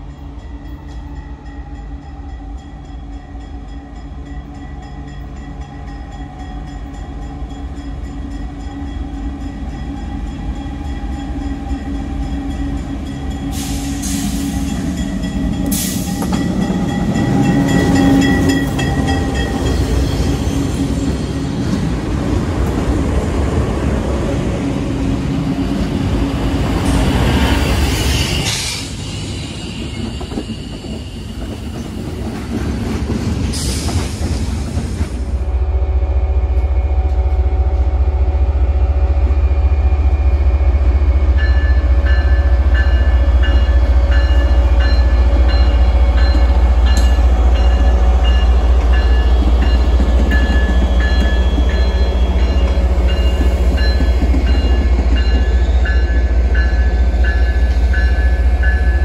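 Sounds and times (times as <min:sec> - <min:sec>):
train wheels clattering over track: 0:13.0 - 0:23.0, 0:26.6 - 0:35.4, 0:42.8 - 0:59.0.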